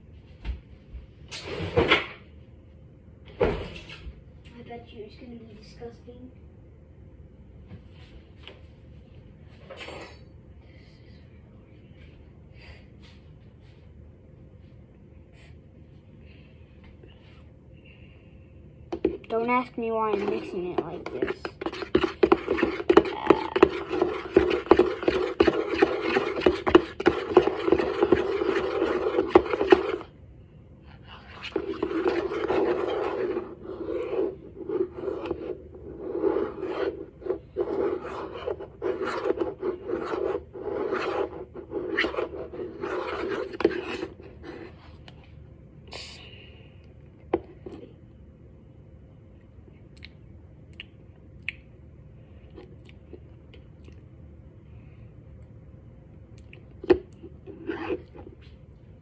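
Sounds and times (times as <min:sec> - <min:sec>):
metal spoon scraping a bowl: 0:20.1 - 0:30.0, 0:31.2 - 0:44.2.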